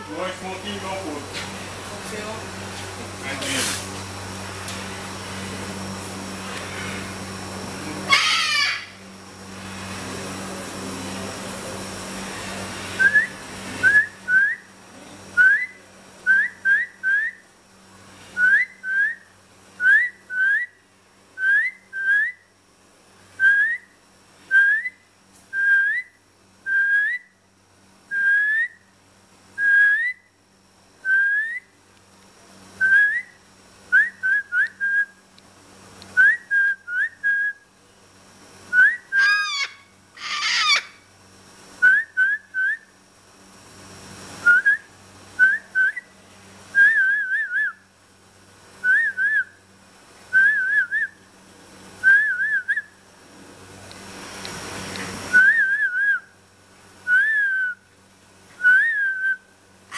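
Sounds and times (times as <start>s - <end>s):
cockatoo screech: 8.0s - 9.0s, 39.1s - 41.0s.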